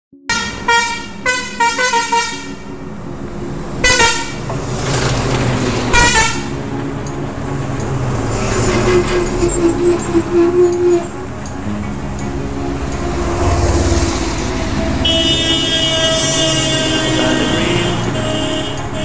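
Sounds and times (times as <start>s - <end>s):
truck air horn blasts: 0.3s - 2.8s, 3.8s - 4.4s, 6.0s - 6.5s, 14.8s - 19.0s.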